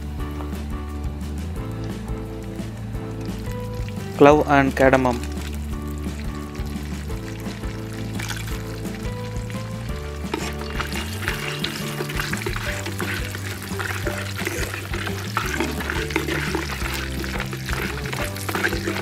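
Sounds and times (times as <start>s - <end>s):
background music with bass line: 0.0s - 19.0s
spices sizzling in hot oil: 1.7s - 19.0s
wooden spoon stirring: 5.1s - 19.0s.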